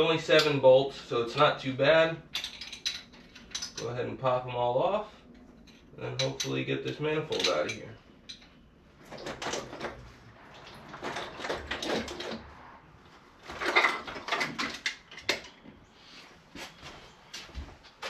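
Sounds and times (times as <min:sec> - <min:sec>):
metal tools and parts clinking: 0:02.3 - 0:04.0, 0:05.3 - 0:10.0.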